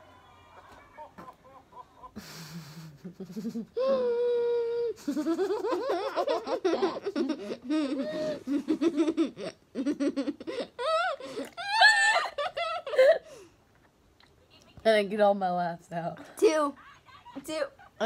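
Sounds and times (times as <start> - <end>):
laughter: 0.5 - 3.7, 5.0 - 13.2.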